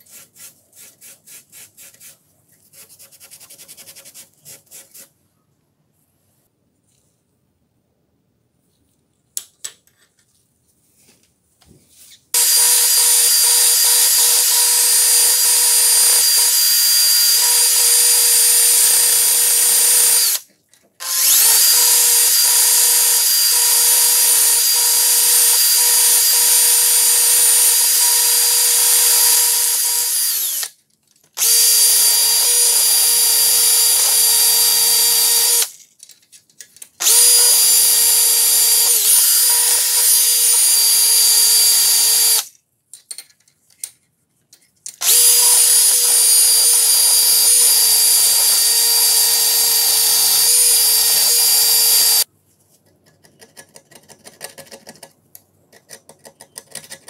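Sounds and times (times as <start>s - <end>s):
rotary tool wire wheel whining: 21.0s - 30.7s.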